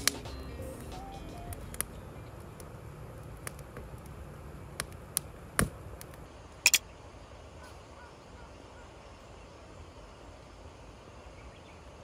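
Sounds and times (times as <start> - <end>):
firewood crackling: 0.0 - 6.8
open-air ambience: 0.0 - 12.0.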